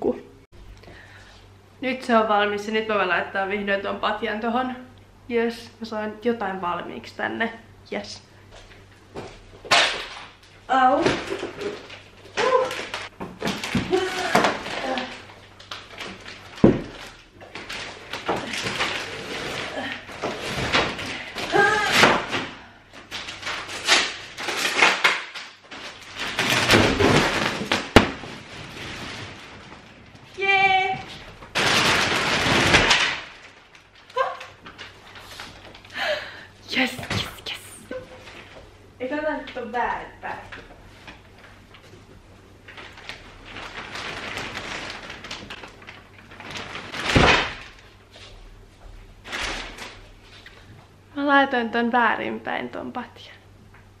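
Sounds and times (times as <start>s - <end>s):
plastic wrap rustling: 8.6s - 38.8s, 39.4s - 50.8s.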